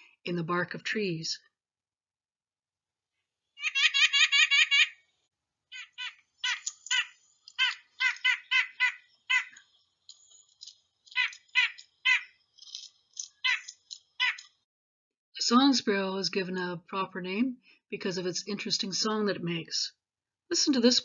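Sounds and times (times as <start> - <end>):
nuthatch calling short notes: 5.8 - 9.6, 11.2 - 12.3, 13.4 - 14.5.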